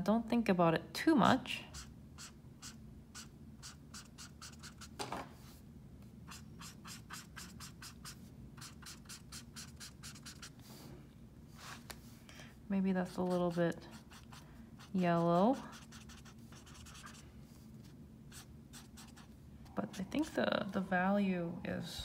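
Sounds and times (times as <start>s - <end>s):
marker nib scratching paper: 1.7s - 5.0s, 6.3s - 10.5s, 13.0s - 17.2s, 18.3s - 19.3s.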